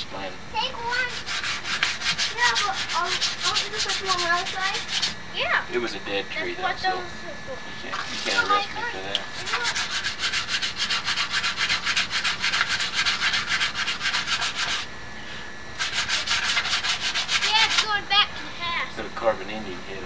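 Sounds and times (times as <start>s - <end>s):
sandpaper rasping on wood: 0.8s - 5.2s, 8.0s - 8.7s, 9.3s - 14.9s, 15.8s - 18.0s.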